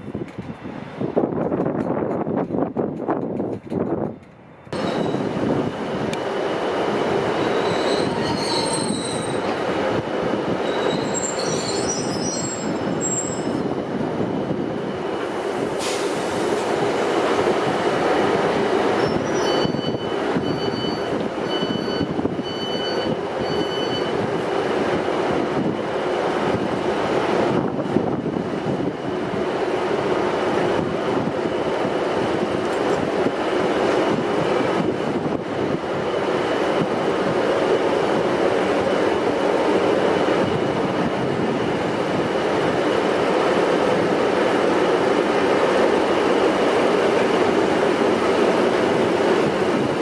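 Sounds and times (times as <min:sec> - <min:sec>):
train wheels and locomotives rumbling: 0:00.0 - 0:50.0
high wheel squeal: 0:04.8 - 0:05.3, 0:07.4 - 0:09.5, 0:10.6 - 0:13.7, 0:19.0 - 0:24.2.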